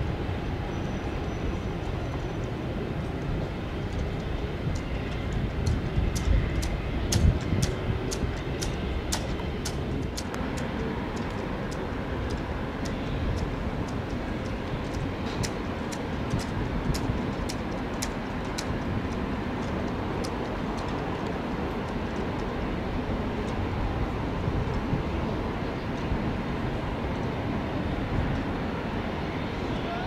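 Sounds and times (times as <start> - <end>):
distant jet engines rumbling: 0.0 - 30.0
sharp high ticks: 4.7 - 20.9.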